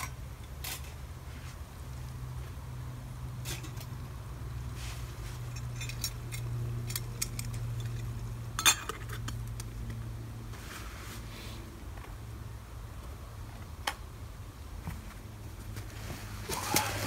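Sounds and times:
spoon clinking metal pot: 8.6 - 9.4.

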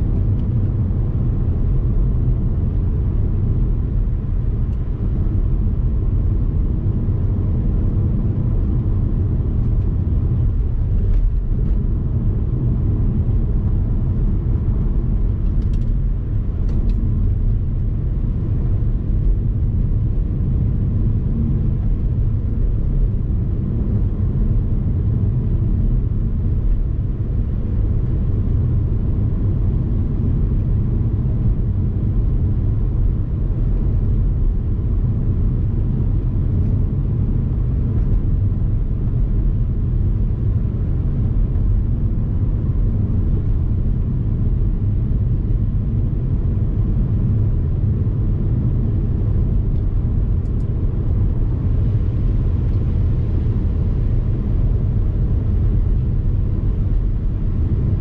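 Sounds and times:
vehicle road and wind noise: 0.0 - 58.0.

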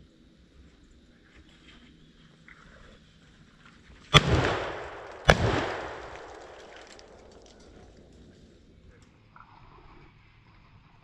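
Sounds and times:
shotgun shots: 4.2 - 7.6
long rolling echo: 4.2 - 8.0.

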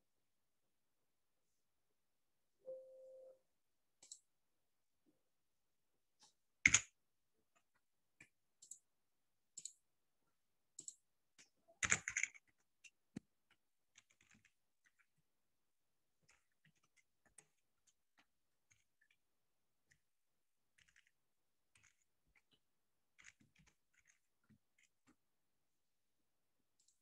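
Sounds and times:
computer alert chime: 2.7 - 3.4.

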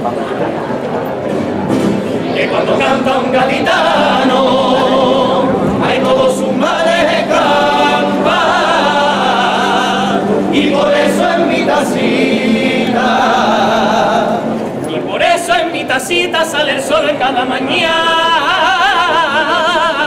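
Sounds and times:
male chorus singing: 2.3 - 20.0.

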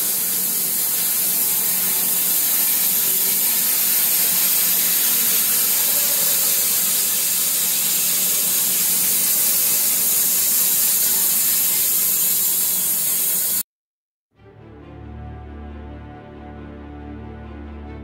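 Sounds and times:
band saw cutting log: 0.0 - 13.6.

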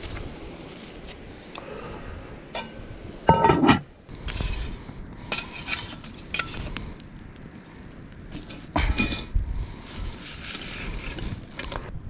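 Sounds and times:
metal cookware clinking and scraping: 2.6 - 3.8.

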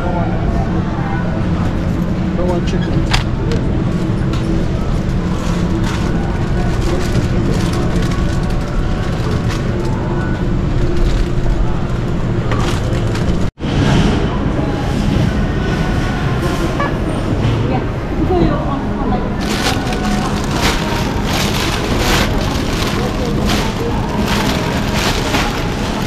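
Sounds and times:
indistinct background voices: 0.0 - 26.0
refrigerator hum: 19.1 - 26.0.

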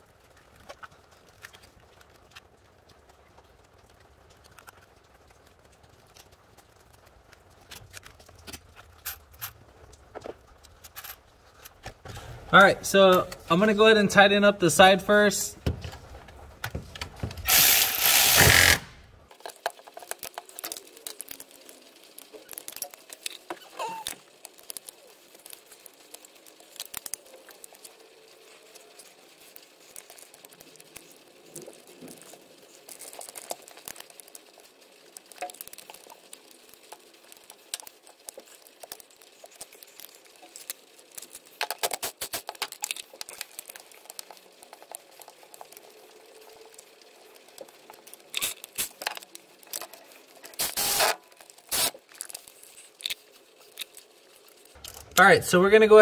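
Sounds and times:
rapid ratchet clicking: 17.4 - 19.0, 50.5 - 52.0.

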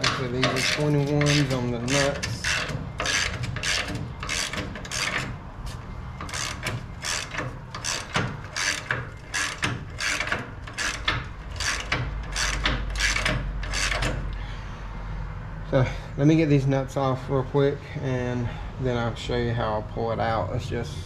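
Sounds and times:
ratchet wrench rasping: 0.0 - 5.4, 6.2 - 14.3.

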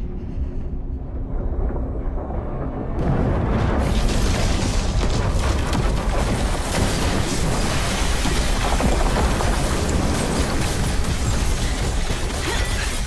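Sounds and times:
deep continuous rumble: 0.0 - 13.0
buildings collapsing and debris crashing: 1.2 - 13.0.

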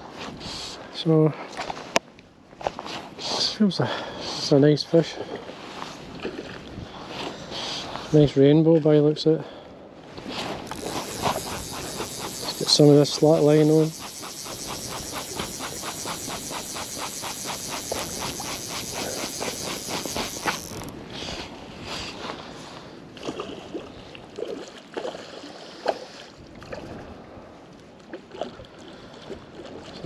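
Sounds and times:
fly reel ratchet clicking: 10.6 - 21.0
scattered irregular clicks: 10.7 - 20.9.

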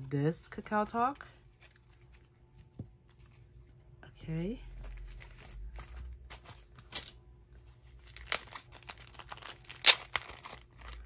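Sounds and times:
plastic sleeves crinkling: 4.7 - 11.0.

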